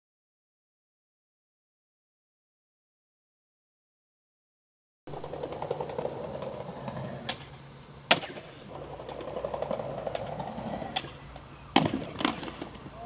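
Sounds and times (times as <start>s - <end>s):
skateboard clack: 5.1s - 13.0s
skateboard wheels rolling on concrete: 5.1s - 13.0s.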